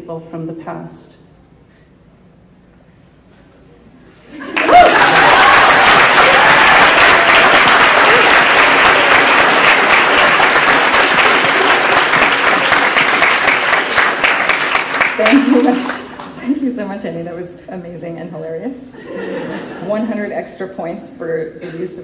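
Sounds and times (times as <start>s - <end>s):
audience applauding: 4.3s - 16.6s.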